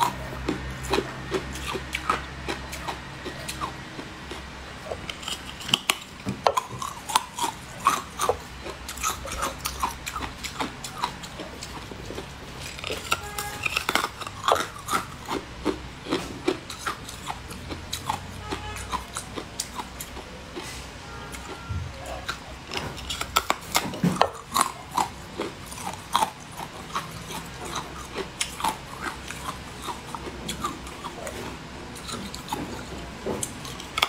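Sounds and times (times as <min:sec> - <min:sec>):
candy crunching bites: 0:00.0 - 0:21.6, 0:22.2 - 0:34.0
mouth sounds: 0:06.5 - 0:33.1.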